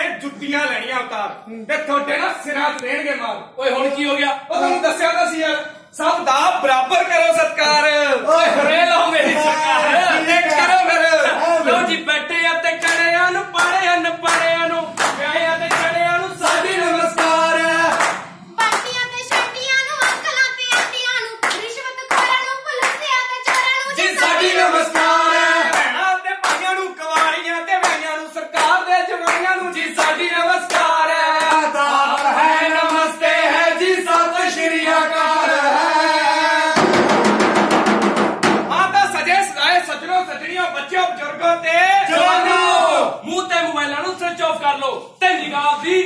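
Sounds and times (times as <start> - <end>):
loud dense noise: 8.5 - 19.4
group singing a chant: 11.3 - 18.6, 23.8 - 26.6, 27.3 - 37.0
hand claps: 12.8 - 32.3.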